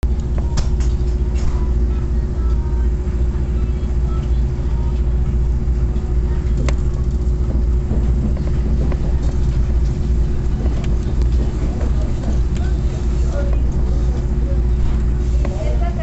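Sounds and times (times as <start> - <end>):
constant hum: 0.0 - 16.0
train rumbling on track: 0.0 - 16.0.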